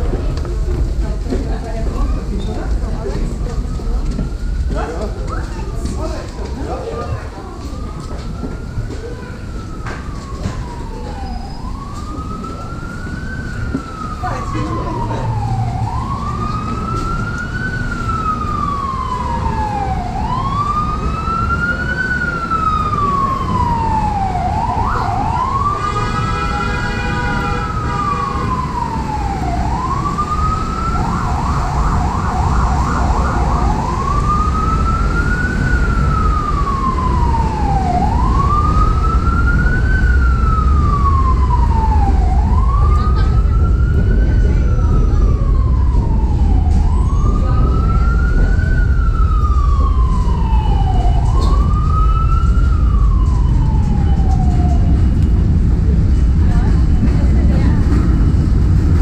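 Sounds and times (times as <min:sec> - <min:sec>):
emergency siren wailing: 0:00.0 - 0:59.0
vehicle horn: 0:25.8 - 0:28.6
low rumble: 0:28.5 - 0:59.0.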